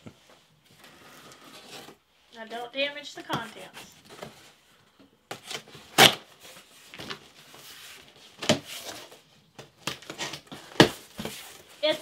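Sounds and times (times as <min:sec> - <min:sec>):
packing tape being cut: 0:05.4 - 0:06.3.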